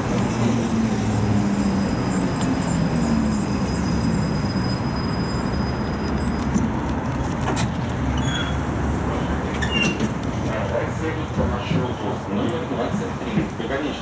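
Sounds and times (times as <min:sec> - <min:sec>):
tram wheel and running-gear noise: 0:00.0 - 0:14.0.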